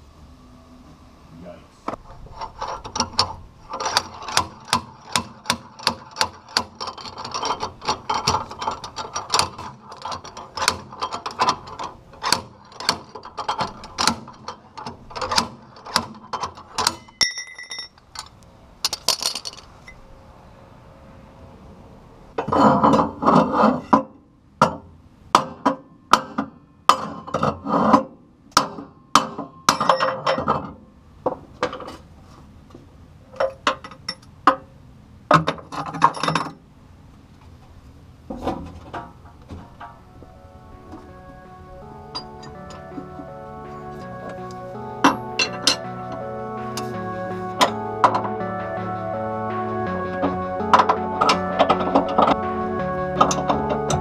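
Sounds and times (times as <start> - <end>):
ringing metal note: 39.7 - 54.0.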